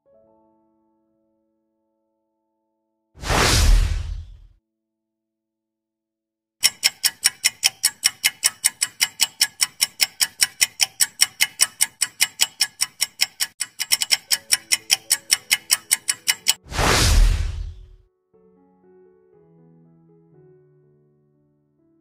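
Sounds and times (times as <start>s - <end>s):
clock ticking: 6.6s - 16.6s.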